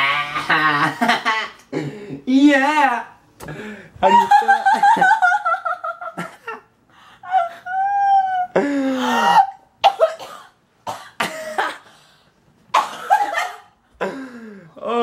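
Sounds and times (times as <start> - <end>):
woman groaning: 7.3 - 9.6
woman coughing and gagging: 9.1 - 11.9, 12.7 - 14.2.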